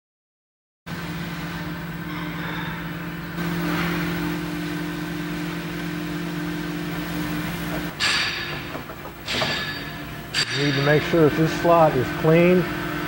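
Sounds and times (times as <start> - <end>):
steady machine hum: 0.9 - 13.0
spanner scraping and clanking metal: 7.4 - 12.9.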